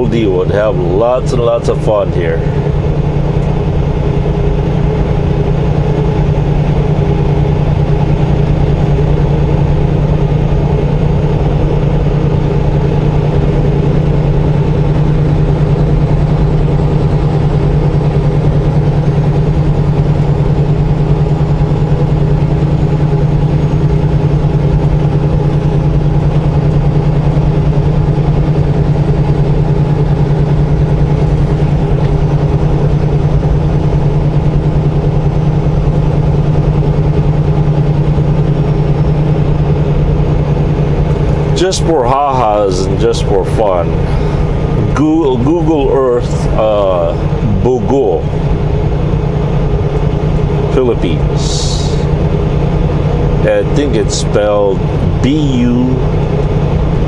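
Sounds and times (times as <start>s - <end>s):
road noise: 0.0s - 24.9s, 39.2s - 57.0s
diesel engine drone: 0.0s - 57.0s.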